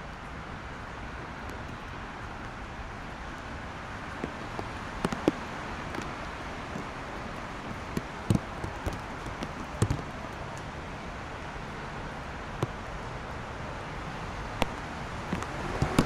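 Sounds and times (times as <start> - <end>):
distant traffic on wet roads: 0.0 - 16.0
raindrop taps: 1.3 - 2.6, 4.0 - 10.7, 14.6 - 16.0.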